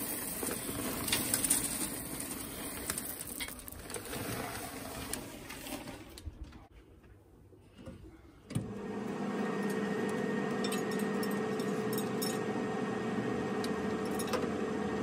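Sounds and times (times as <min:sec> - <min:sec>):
machine hum: 0:08.6 - 0:15.0.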